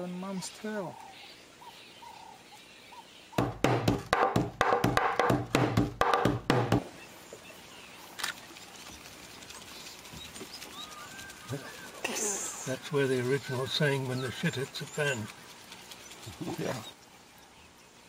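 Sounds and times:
faint outdoor background: 0.0s - 18.0s
hand drum beaten rhythmically: 3.4s - 6.9s.

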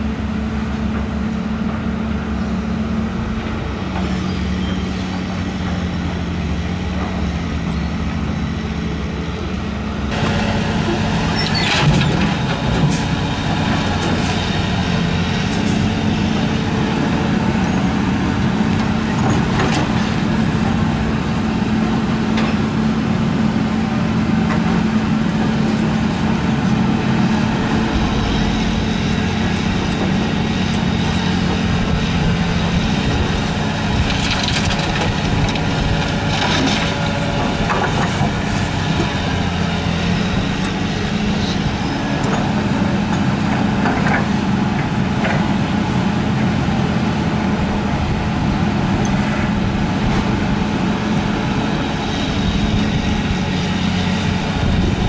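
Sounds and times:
heavy machinery diesel engine running: 0.0s - 55.0s.

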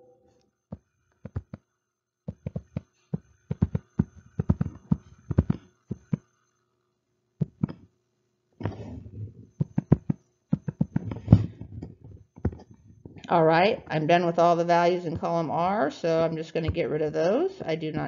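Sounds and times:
stylus clicking on tablet screen: 0.7s - 1.7s, 2.3s - 6.3s
stylus brushing stroke: 2.3s - 6.3s.

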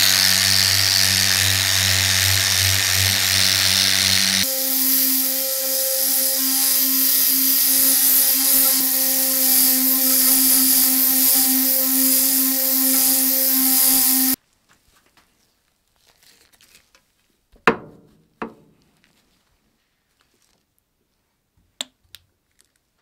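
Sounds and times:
power tool humming and hissing: 0.0s - 14.4s.

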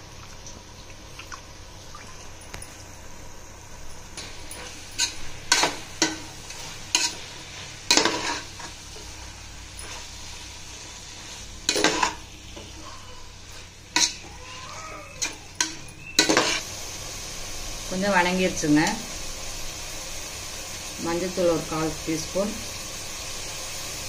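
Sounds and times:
mushrooms sizzling in a pan: 2.6s - 24.0s
spoon scraping and knocking pan: 4.2s - 7.3s, 7.9s - 9.1s, 11.6s - 12.8s, 13.9s - 14.4s, 15.2s - 16.6s.

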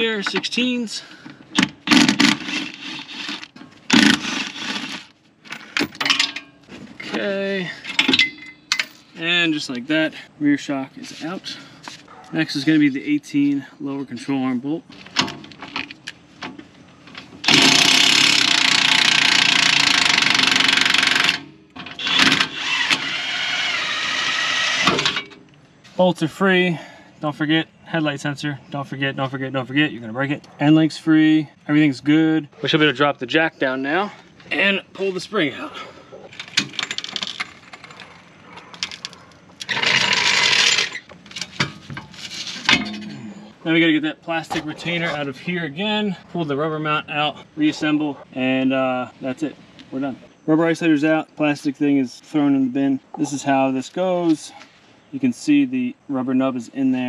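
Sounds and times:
floor jack clicking and clanking: 39.7s - 43.0s.

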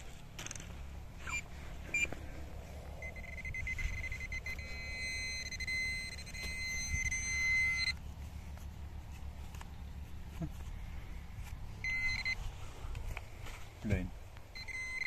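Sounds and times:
metal detector beeping: 1.2s - 2.2s, 3.0s - 8.0s, 11.8s - 12.4s, 14.5s - 15.0s.

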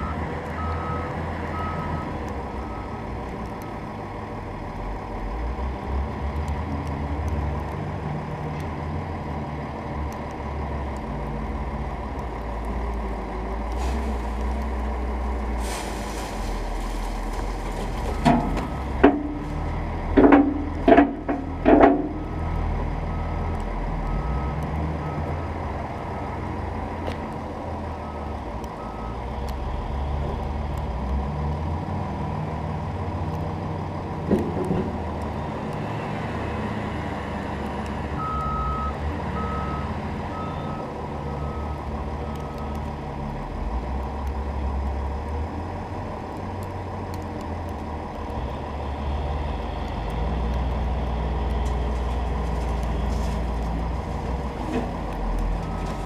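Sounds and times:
truck engine running: 32.2s - 56.0s.

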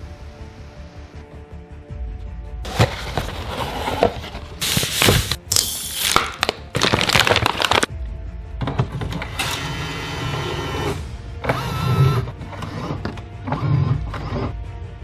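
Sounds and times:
background music: 0.0s - 15.0s
foil bag crinkling: 4.7s - 7.9s.

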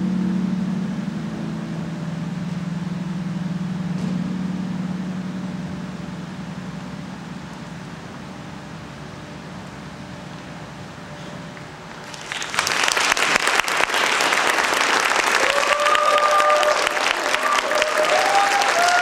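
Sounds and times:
audience applauding: 12.0s - 19.0s
high cheering calls: 12.1s - 19.0s.

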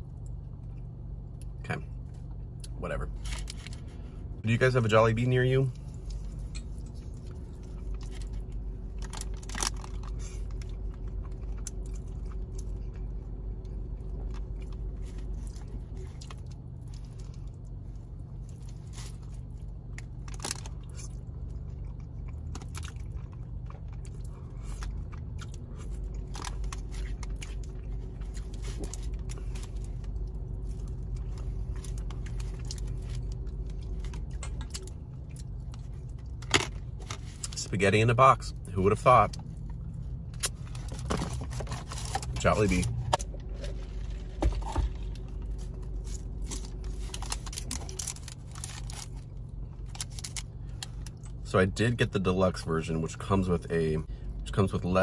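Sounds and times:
steady low hum: 0.0s - 55.0s
chewing: 5.7s - 37.6s.

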